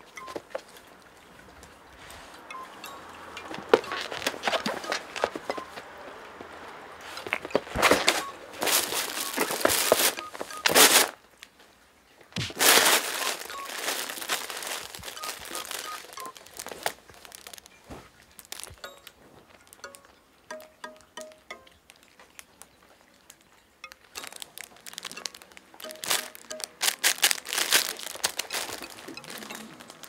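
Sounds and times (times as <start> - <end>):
fabric play tunnel crinkling: 0.0 - 20.2, 21.8 - 30.0
cats scuffling: 3.5 - 11.7, 12.4 - 19.9, 25.8 - 30.0.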